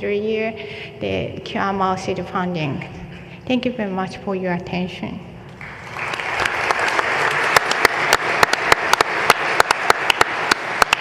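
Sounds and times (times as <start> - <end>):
audience applauding: 5.6 - 11.0
sharp close claps: 5.6 - 11.0.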